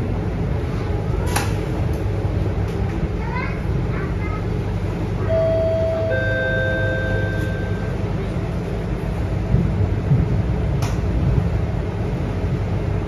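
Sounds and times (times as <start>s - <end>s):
bus diesel engine idling: 0.0s - 10.7s
held tone: 5.3s - 8.0s.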